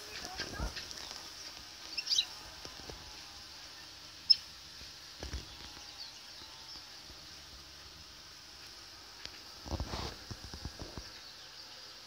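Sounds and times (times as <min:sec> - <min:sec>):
faint high hiss: 0:00.0 - 0:12.0.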